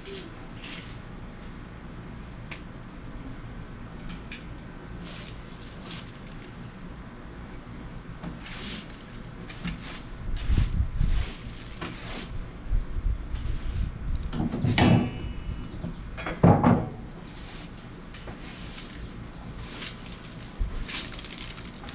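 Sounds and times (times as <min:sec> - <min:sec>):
broom sweeping wooden boards: 0:00.1 - 0:01.1, 0:08.3 - 0:12.4, 0:17.2 - 0:21.9.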